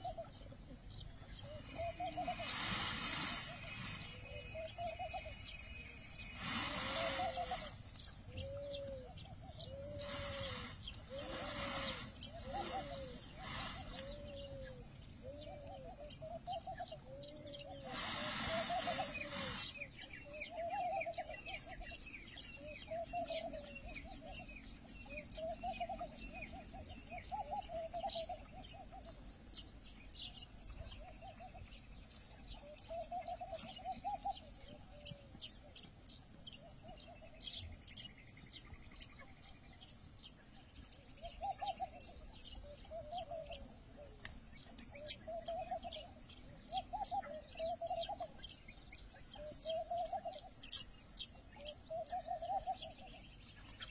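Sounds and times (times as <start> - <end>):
dove cooing: 0.0 - 5.3, 6.4 - 22.0, 22.6 - 29.2, 41.2 - 44.2, 49.3 - 50.5, 51.6 - 53.2
small birds chirping: 0.0 - 53.9.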